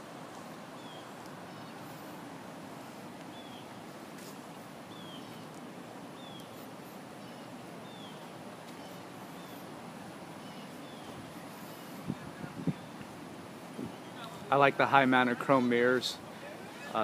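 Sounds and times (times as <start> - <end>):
outdoor background hiss: 0.0 - 17.0
bird chirping: 0.8 - 2.0, 3.3 - 3.8, 4.9 - 5.6, 6.2 - 9.7, 10.4 - 12.1.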